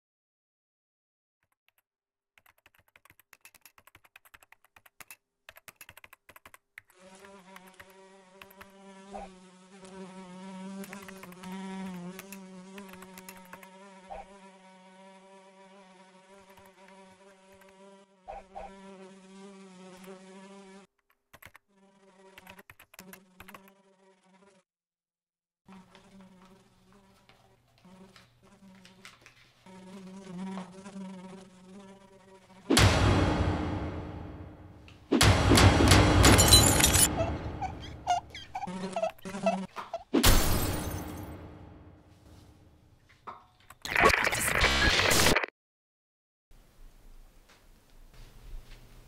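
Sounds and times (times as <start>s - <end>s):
computer keyboard typing: 2.4s - 6.9s
insect buzzing: 6.9s - 20.9s, 21.6s - 24.7s, 25.7s - 42.0s.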